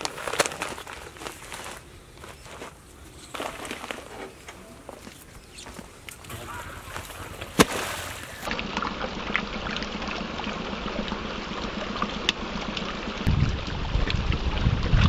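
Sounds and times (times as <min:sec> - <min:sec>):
fish splashing at water surface: 0:05.4 - 0:13.3.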